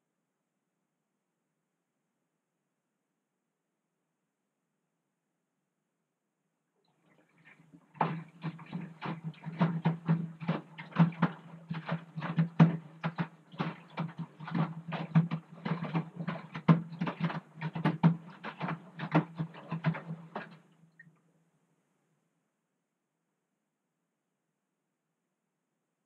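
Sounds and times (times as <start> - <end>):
wet clothes sloshing in water: 6.9 - 21.1
washing machine motor humming: 7.0 - 20.6.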